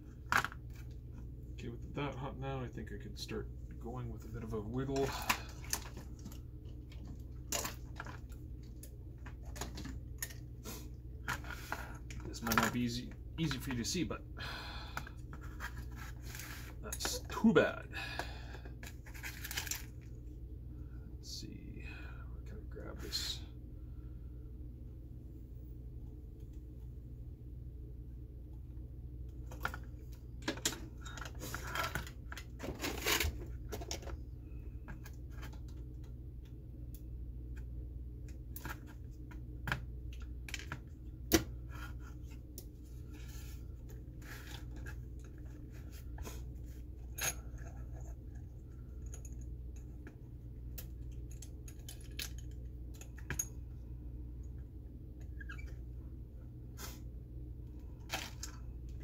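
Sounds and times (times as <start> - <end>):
steady low hum: 0.0 - 59.0
rustling scrape: 15.4 - 16.8.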